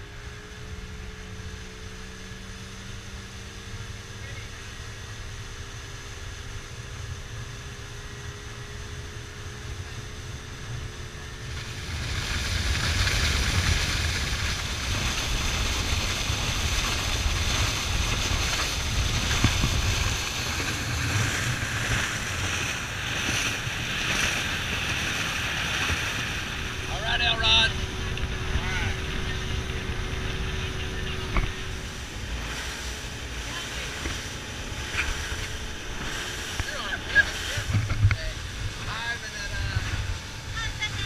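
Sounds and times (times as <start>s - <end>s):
faint boat engine hum: 0.0s - 41.0s
wind: 0.0s - 41.0s
water spray rushing along hull: 11.3s - 41.0s.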